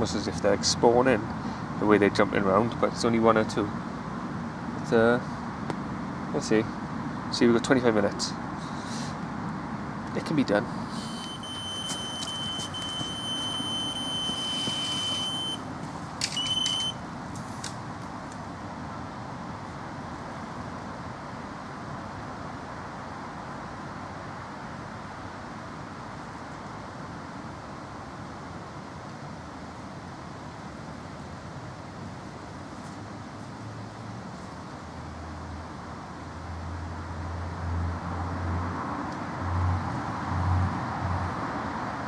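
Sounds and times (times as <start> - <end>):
electronic bite alarm tone: 11.1 - 15.7, 16.3 - 17.0.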